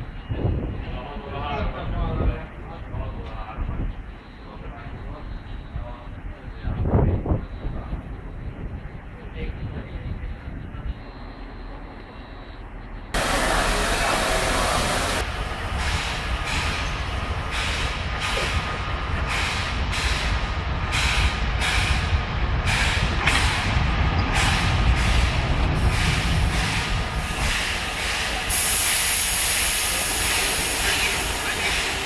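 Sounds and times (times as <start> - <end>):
low train rumble: 0.0 - 32.0
loud hiss of steam: 13.2 - 23.7, 24.3 - 32.0
steam locomotive chuffing: 13.2 - 32.0.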